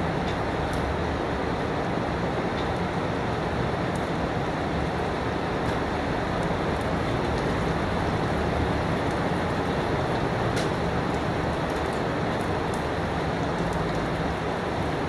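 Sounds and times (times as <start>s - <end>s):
steady rain hiss: 0.0s - 15.0s
raindrop taps: 0.2s - 0.8s, 9.0s - 14.2s.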